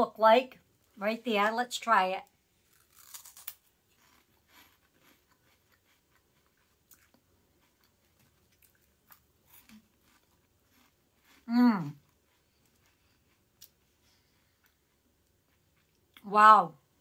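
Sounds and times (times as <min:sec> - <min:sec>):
crunchy snack chewing: 0:02.6 - 0:13.8.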